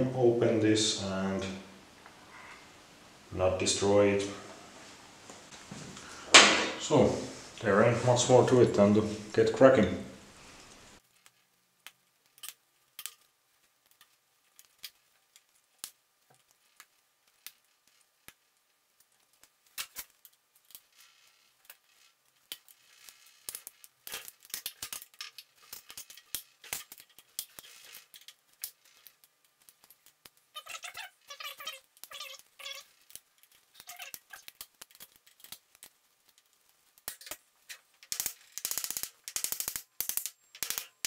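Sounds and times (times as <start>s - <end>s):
hand tool clicking on screws: 37.0s - 41.0s.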